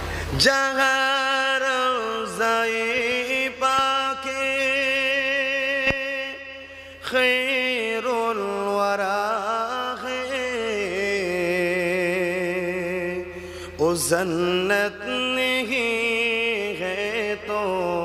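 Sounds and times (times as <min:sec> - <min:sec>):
man singing devotional song: 0:00.0 - 0:18.0.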